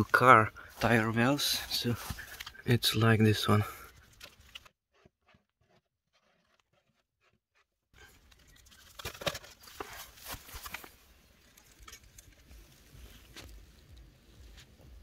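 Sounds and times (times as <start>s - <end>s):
camera handling rustle: 2.0s - 2.6s, 8.2s - 13.8s.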